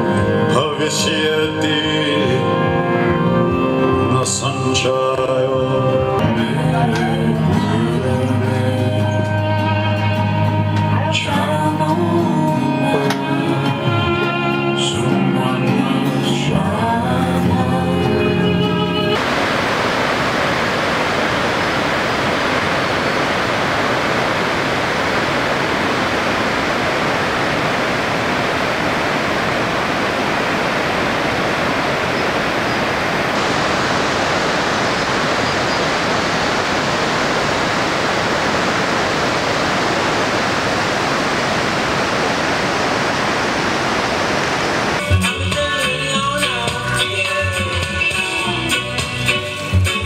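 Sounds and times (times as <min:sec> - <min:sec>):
stream rushing over boulders: 0:19.2 - 0:45.0.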